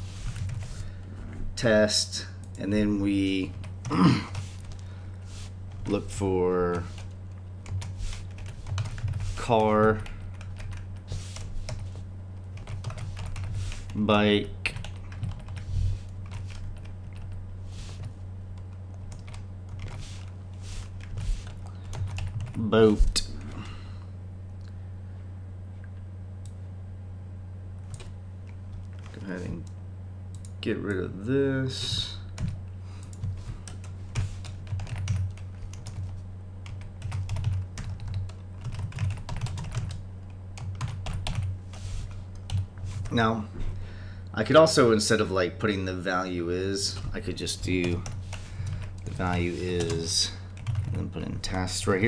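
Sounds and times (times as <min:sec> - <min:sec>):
low electrical hum: 0:00.0 - 0:52.0
keyboard typing: 0:06.7 - 0:12.0, 0:12.6 - 0:14.0, 0:14.7 - 0:17.4, 0:21.0 - 0:22.6, 0:32.4 - 0:40.0, 0:40.6 - 0:41.5, 0:47.8 - 0:51.0
typing on computer keyboard: 0:12.6 - 0:13.5, 0:34.7 - 0:36.1, 0:36.7 - 0:40.0, 0:40.6 - 0:41.5, 0:50.6 - 0:51.0.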